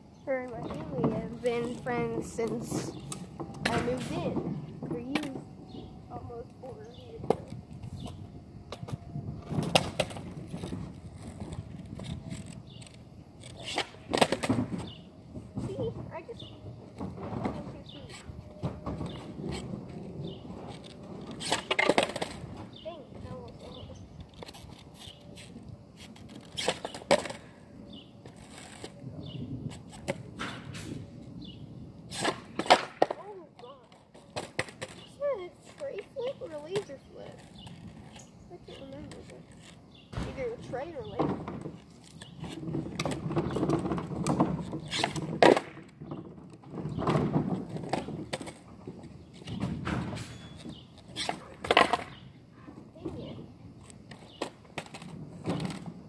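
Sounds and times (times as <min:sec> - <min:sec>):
skateboard wheels rolling on asphalt: 0:00.0 - 0:56.0
skateboard deck clacks: 0:00.4 - 0:05.8, 0:07.2 - 0:19.6, 0:20.2 - 0:25.3, 0:25.9 - 0:27.5, 0:32.1 - 0:52.3.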